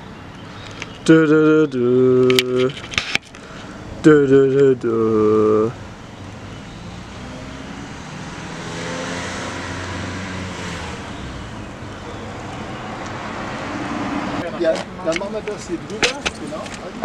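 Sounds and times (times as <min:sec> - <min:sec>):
vehicle driving past: 0:05.8 - 0:14.6.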